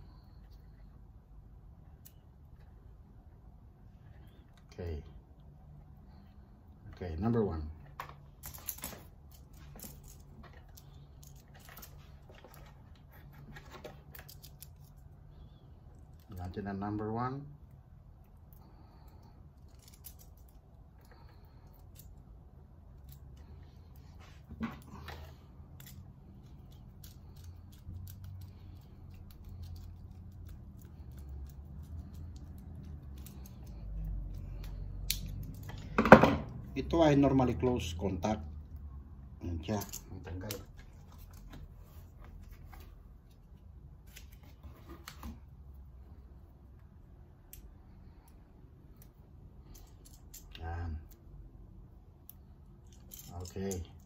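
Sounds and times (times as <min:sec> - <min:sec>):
low steady hum: 0:00.0 - 0:54.0
plastic pieces clicking and rustling: 0:19.7 - 0:20.6.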